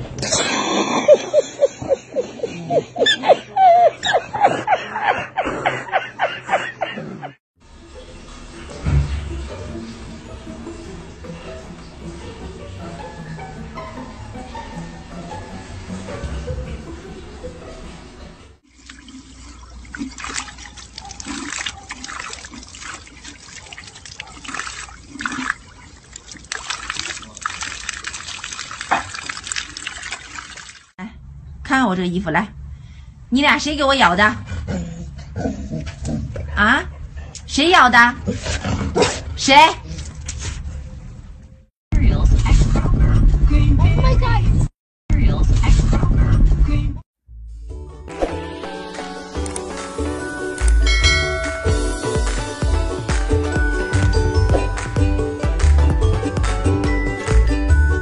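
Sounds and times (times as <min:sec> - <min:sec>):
man laughing hard: 0:00.3 - 0:07.4
dog lapping water: 0:18.7 - 0:30.9
fountain water trickling and splashing: 0:18.7 - 0:30.9.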